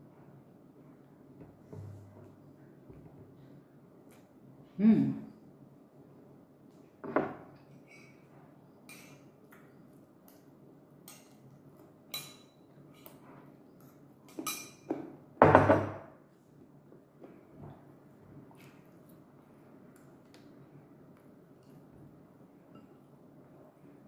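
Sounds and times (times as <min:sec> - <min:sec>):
spoon clinking against bowl: 0:12.1 - 0:13.2, 0:14.3 - 0:14.9.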